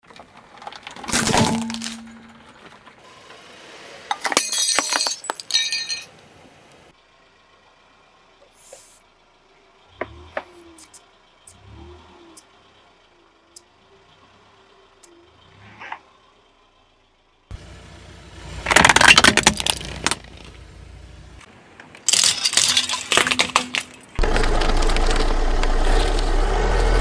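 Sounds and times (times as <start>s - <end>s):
tyre crushing plastic: 18.6s - 20.4s, 21.9s - 25.7s.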